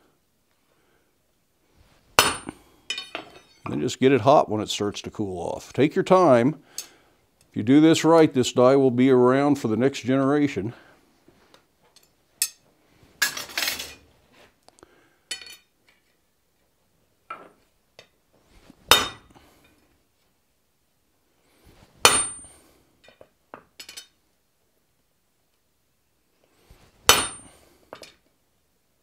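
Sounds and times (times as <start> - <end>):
light metal clinks: 2.2 - 3.8
metal ringing: 2.2 - 3.8, 18.9 - 19.3, 22.0 - 22.5, 27.1 - 27.5.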